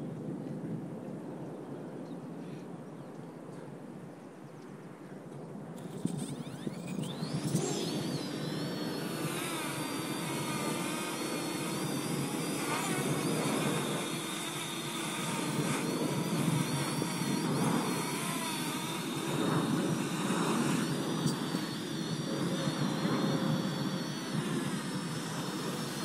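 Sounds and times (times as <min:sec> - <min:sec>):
wind on microphone: 0:05.7 - 0:26.0
drone propellers whining: 0:05.8 - 0:26.0.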